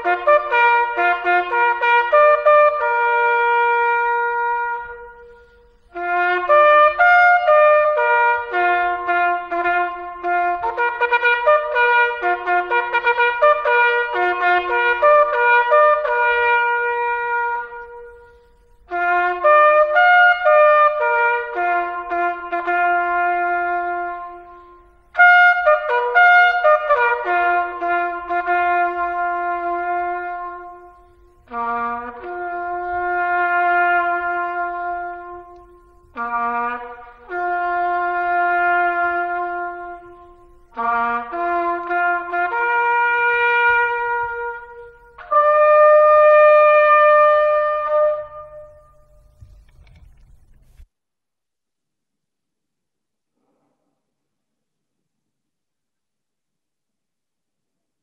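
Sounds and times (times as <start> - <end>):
solo cornet melody: 0.0 - 50.0.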